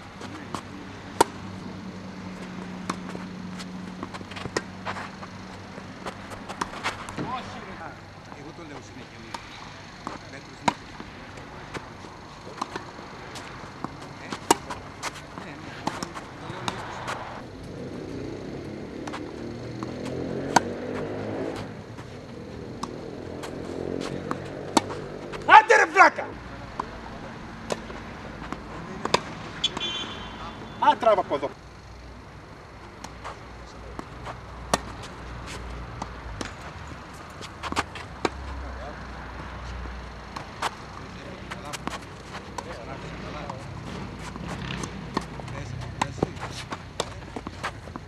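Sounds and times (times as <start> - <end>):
rackets hitting tennis ball: 0.1 - 32.0, 32.7 - 48.0
tennis ball bouncing: 0.2 - 8.4, 9.3 - 32.0, 32.7 - 38.6, 39.3 - 48.0.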